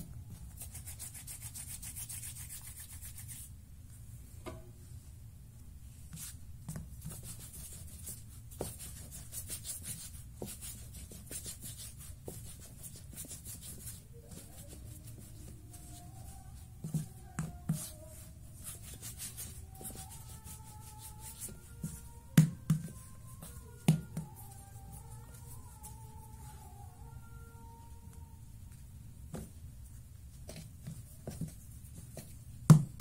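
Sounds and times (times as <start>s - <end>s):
hands rolling dough on board: 6.1s - 28.2s, 30.3s - 33.0s.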